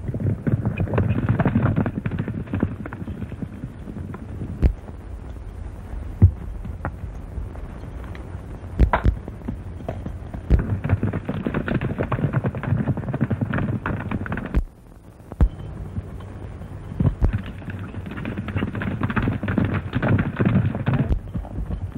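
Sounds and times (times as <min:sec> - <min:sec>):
old film soundtrack hiss: 0:00.0 - 0:21.9
horse hoofbeats: 0:08.8 - 0:14.7, 0:15.4 - 0:21.9.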